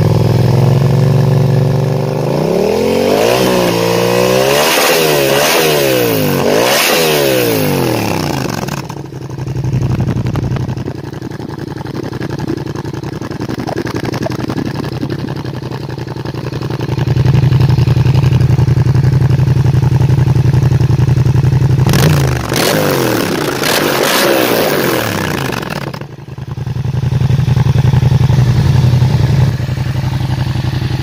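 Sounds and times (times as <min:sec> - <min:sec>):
motorcycle engine idling: 0:00.0 - 0:03.0, 0:07.5 - 0:22.6, 0:25.0 - 0:31.0.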